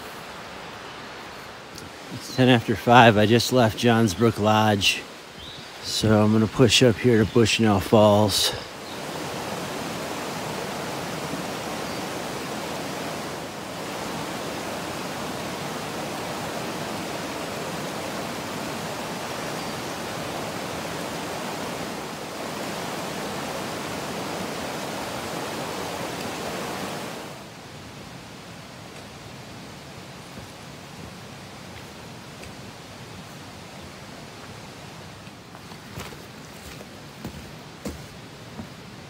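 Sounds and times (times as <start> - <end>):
brook water tumbling over rocks: 5.8 - 27.5.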